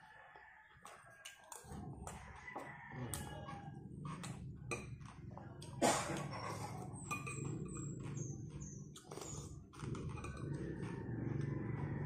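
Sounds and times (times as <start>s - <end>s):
person chewing and smacking: 0.8s - 3.3s, 4.1s - 10.9s
slurping: 9.0s - 10.8s.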